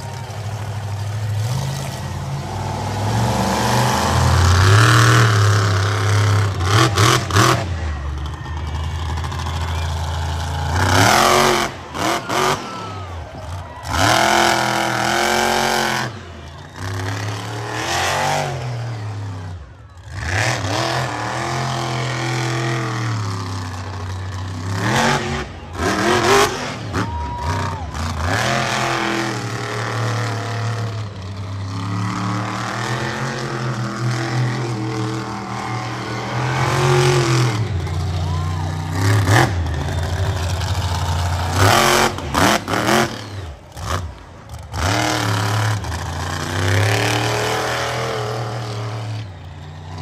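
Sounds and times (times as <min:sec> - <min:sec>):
truck engine revving: 0:00.0 - 0:50.0.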